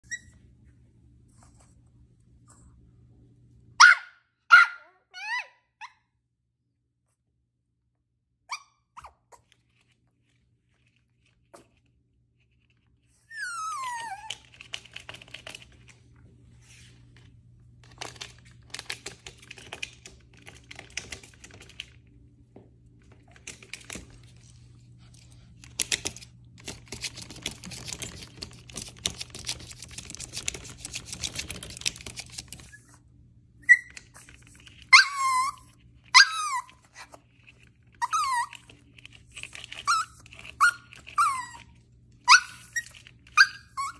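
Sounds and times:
puppy whining: 0.0 - 0.4, 4.5 - 5.9, 13.1 - 15.5, 33.6 - 43.9
puppy yappy barks: 3.8 - 5.6
light clicking and scratching: 9.3 - 13.1, 13.8 - 22.1, 23.0 - 32.8, 33.7 - 43.9.

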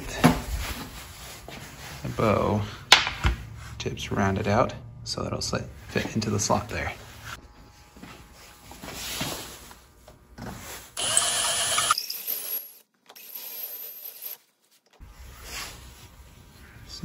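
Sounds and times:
cordless drill boring into horn: 11.0 - 12.6.

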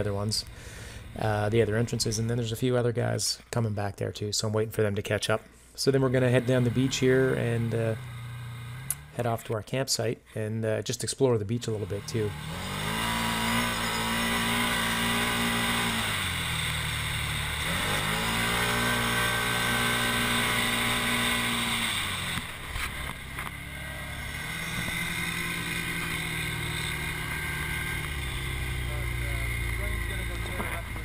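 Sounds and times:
utility vehicle engine: 0.0 - 2.5, 6.0 - 9.4, 11.6 - 31.0.

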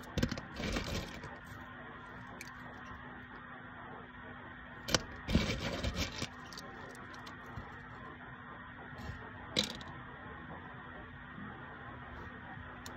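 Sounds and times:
wood chips rustling and clattering: 0.0 - 2.7, 4.9 - 7.8.

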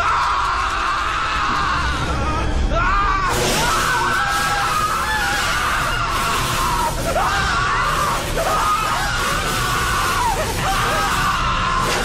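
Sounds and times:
man screaming: 0.0 - 12.0
electric crackle: 3.3 - 12.0.

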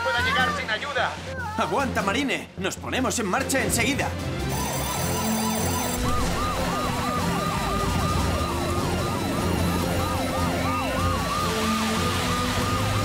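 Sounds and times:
emergency sirens wailing: 4.5 - 13.0.

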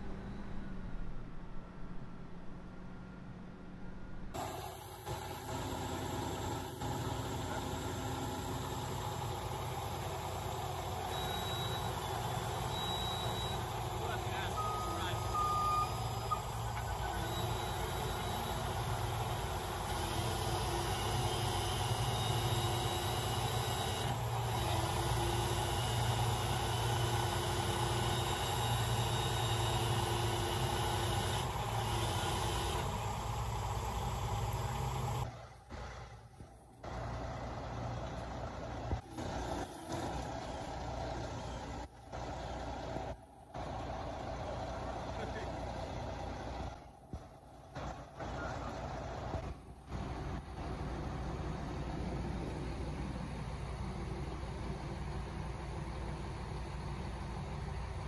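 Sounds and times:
heavy truck engine running: 0.0 - 58.0.

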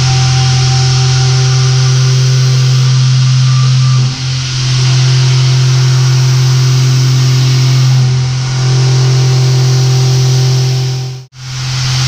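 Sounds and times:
milling machine hum: 0.0 - 12.0.

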